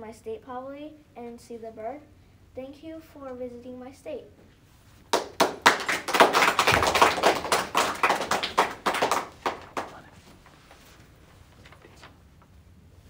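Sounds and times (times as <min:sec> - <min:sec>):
people clapping: 0:05.1 - 0:10.4.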